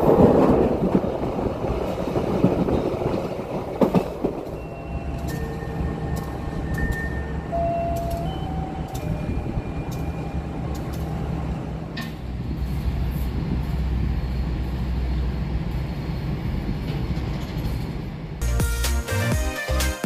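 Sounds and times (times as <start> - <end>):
train rumbling: 0.0 - 18.8
click: 8.9 - 9.1, 9.9 - 10.1, 10.7 - 11.1.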